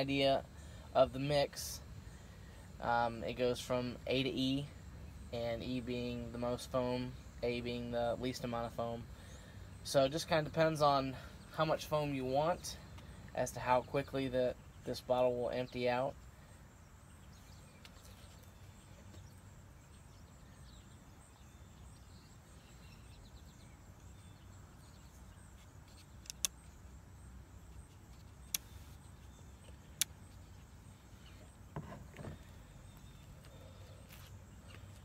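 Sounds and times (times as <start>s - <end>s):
sharp plastic clicks: 25.9s - 26.7s.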